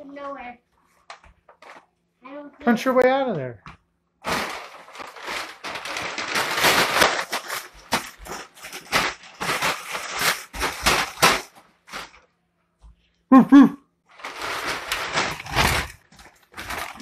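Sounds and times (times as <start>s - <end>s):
paper bag crumpling: 4.2s - 12.2s, 14.1s - 17.0s
paper ripping: 4.2s - 12.2s, 14.1s - 17.0s.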